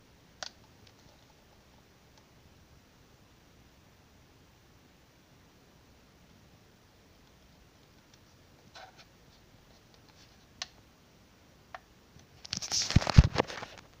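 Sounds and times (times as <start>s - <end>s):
handling noise on desk: 12.4s - 13.9s.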